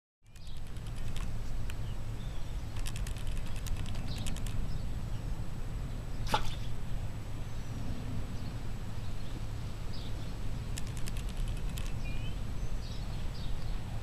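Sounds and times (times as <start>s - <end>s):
quick run of clicks: 0.2s - 1.9s, 2.7s - 4.7s, 10.7s - 12.0s
faint bird chirps: 9.2s - 13.8s.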